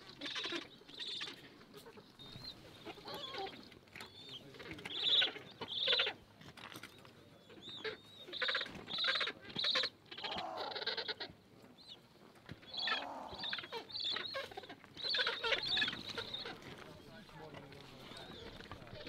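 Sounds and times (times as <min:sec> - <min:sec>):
penguins squawking: 0:12.8 - 0:16.7.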